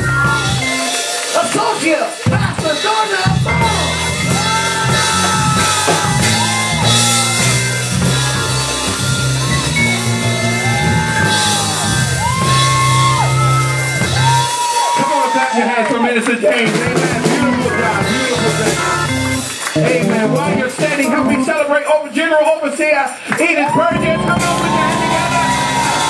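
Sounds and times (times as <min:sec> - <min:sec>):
low bass line: 0:00.0 - 0:00.8, 0:03.4 - 0:14.5, 0:16.9 - 0:21.5, 0:23.9 - 0:26.0
live praise band music: 0:00.0 - 0:26.0
voices singing: 0:03.5 - 0:11.8, 0:16.8 - 0:21.7.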